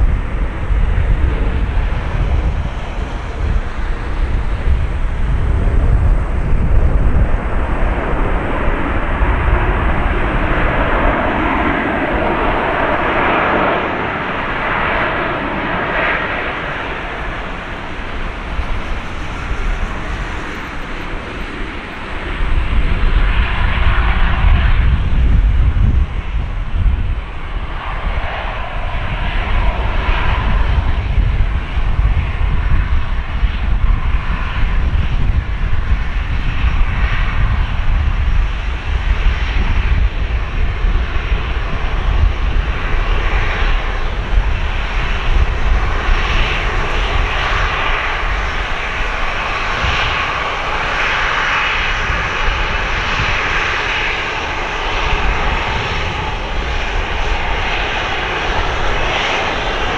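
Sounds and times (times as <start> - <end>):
jet engines idling: 0.0 - 25.0, 40.8 - 59.9.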